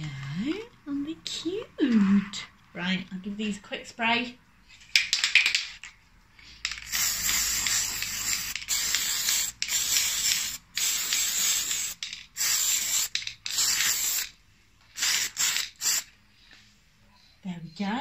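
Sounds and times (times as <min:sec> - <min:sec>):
aerosol spray can hissing: 0:06.7 - 0:14.4, 0:15.0 - 0:16.1.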